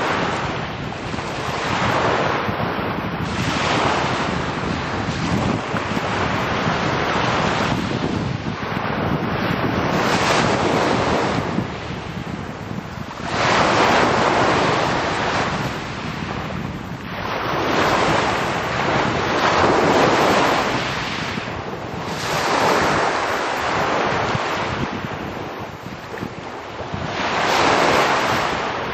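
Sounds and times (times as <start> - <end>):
wind buffeting microphone: 0.0 - 28.9
waves washing up pebble beach: 12.7 - 28.9.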